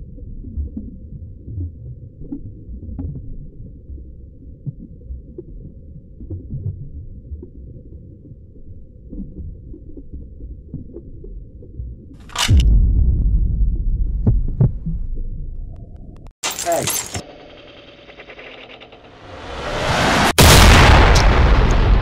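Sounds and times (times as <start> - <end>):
muffled heartbeat-like thumps: 9.0 - 16.2.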